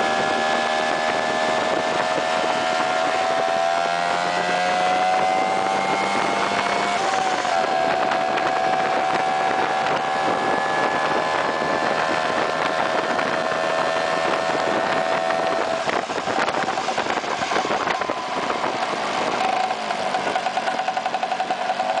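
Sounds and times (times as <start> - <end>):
wind rush: 0.0 - 22.0
scooter engine running: 5.1 - 22.0.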